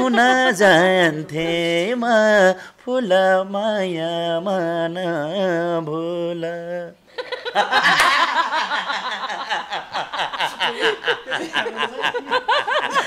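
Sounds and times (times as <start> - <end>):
people laughing: 0.0 - 1.4, 7.1 - 13.0.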